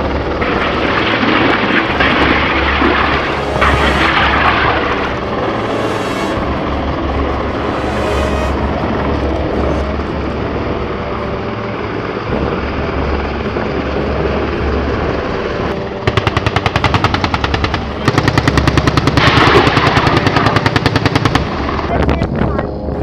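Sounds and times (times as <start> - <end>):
helicopter rotor and engine: 0.0 - 23.0
rapid automatic gunfire: 16.0 - 21.9.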